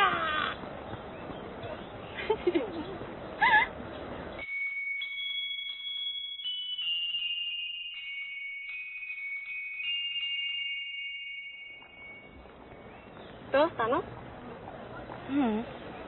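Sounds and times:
chime-like bell notes: 4.4s - 13.3s.

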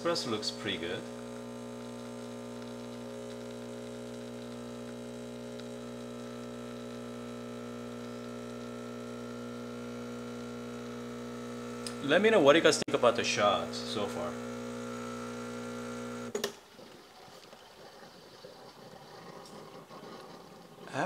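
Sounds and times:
espresso machine pump humming: 0.0s - 16.4s.

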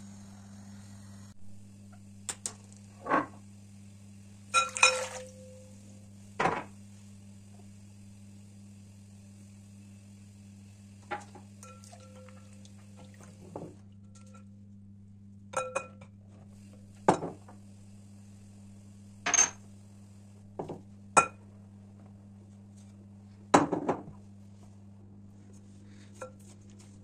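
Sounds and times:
steady low hum: 0.0s - 27.0s
dishes and spoon clinking on glass bowl: 4.6s - 5.4s, 11.6s - 12.5s.

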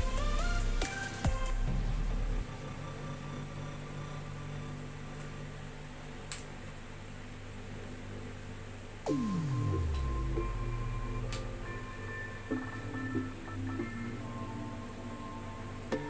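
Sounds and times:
background music: 0.0s - 4.2s, 9.1s - 16.0s
low hum with faint hiss: 0.0s - 16.0s
falling electronic sweep: 9.0s - 15.9s.

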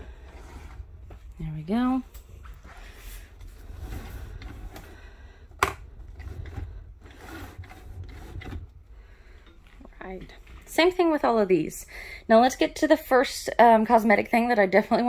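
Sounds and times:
roller shade rustling: 0.0s - 10.9s.

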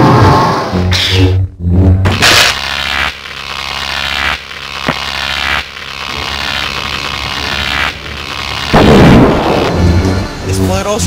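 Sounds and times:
crackling electric energy surges: 0.7s - 11.0s
loud energy blast: 2.0s - 10.5s.

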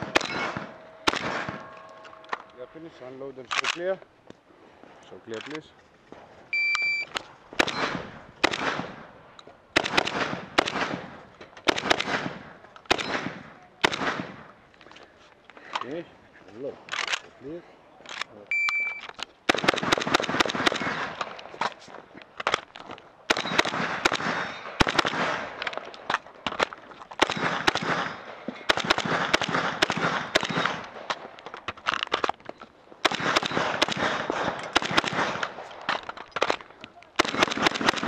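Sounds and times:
rapid shotgun shots: 0.0s - 1.7s, 7.6s - 9.1s, 9.8s - 14.5s, 19.5s - 21.5s, 23.3s - 31.4s, 33.0s - 38.0s
shot timer beep: 6.6s - 7.1s, 18.5s - 19.0s.

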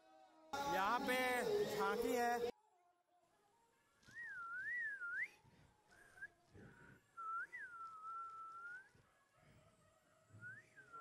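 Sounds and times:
faint whistling: 4.0s - 11.0s.

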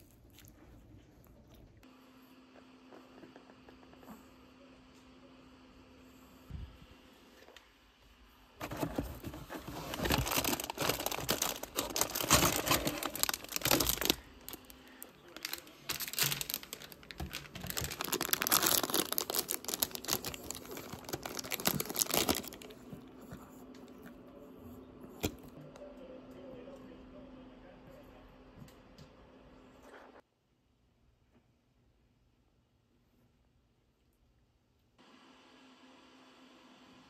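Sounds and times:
foil snack packets crinkling: 8.7s - 22.9s
foil wrapper being torn open: 9.9s - 14.7s, 15.3s - 22.8s.

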